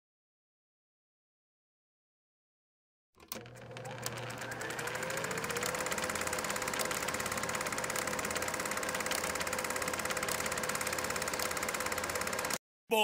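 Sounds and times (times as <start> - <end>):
projector motor hum: 3.2 - 12.6
rapid film advance clicking: 3.2 - 12.6.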